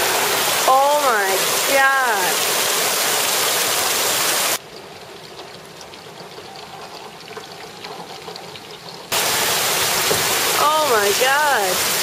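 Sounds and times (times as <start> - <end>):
heavy rain through glass: 0.0 - 12.0
raindrops ticking: 4.6 - 12.0.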